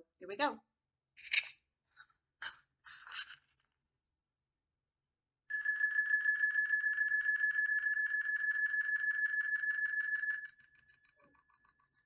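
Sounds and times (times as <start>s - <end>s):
high-pitched ringing tone: 5.5s - 12.0s.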